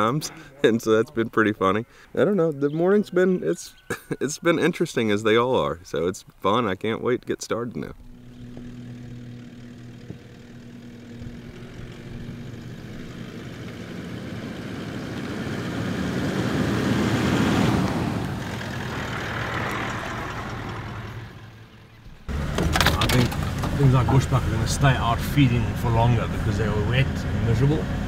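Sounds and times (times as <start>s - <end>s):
vehicle engine humming: 6.8s - 28.0s
vehicle driving by: 8.0s - 28.0s.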